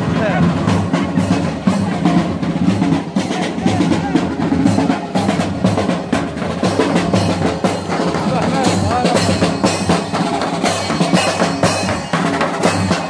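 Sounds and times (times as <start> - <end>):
bass drums beating: 0.0 - 13.0
marching band playing: 0.0 - 13.0
hand cymbals crashing: 6.8 - 13.0.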